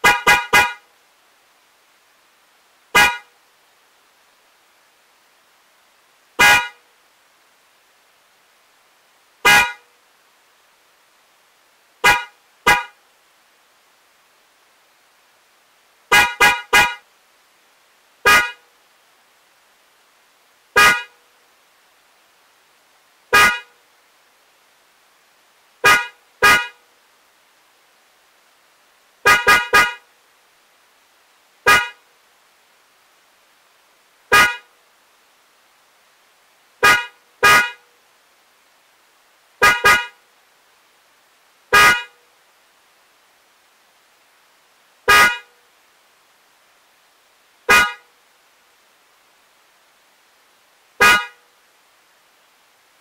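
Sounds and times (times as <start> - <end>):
car horn toots: 0.0 - 0.8, 3.0 - 3.3, 6.4 - 6.8, 9.4 - 9.9, 12.0 - 13.0, 16.1 - 17.0, 18.3 - 18.6, 20.8 - 21.2, 23.3 - 23.7, 25.8 - 26.8, 29.2 - 30.0, 31.7 - 32.0, 34.3 - 34.7, 36.8 - 37.8, 39.6 - 40.2, 41.7 - 42.2, 45.1 - 45.5, 47.7 - 48.1, 51.0 - 51.4.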